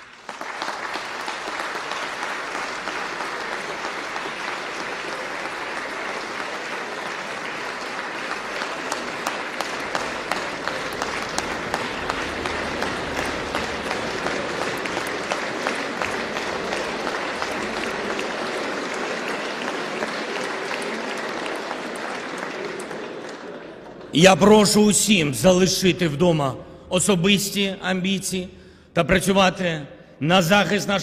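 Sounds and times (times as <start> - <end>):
single claps: 0.0 - 23.4
crowd applauding: 0.0 - 27.3.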